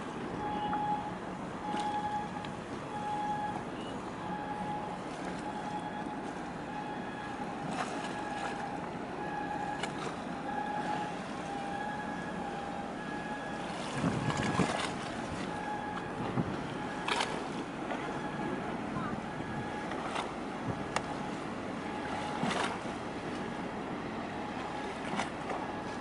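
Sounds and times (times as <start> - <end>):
wind and water: 0.0 - 26.0
wind buffeting microphone: 13.7 - 21.0.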